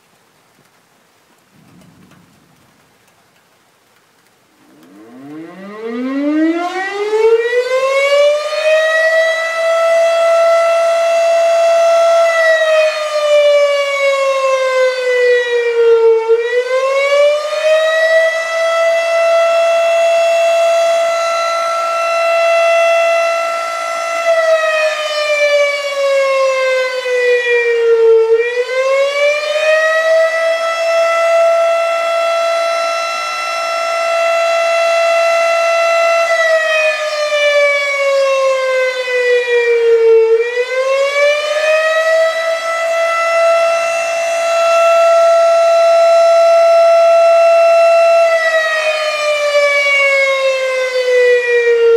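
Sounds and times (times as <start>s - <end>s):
warning siren wailing: 4.5s - 51.9s.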